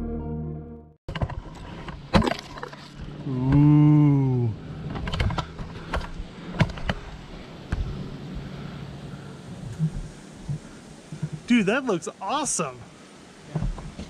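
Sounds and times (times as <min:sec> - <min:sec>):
background music: 0:00.0 - 0:01.0
pitched hum: 0:00.0 - 0:10.8.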